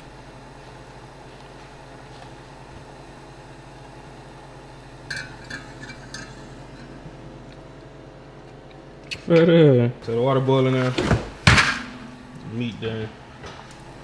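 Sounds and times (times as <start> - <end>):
steady low hum: 0.0 - 14.0
kitchenware clinking: 5.1 - 7.0.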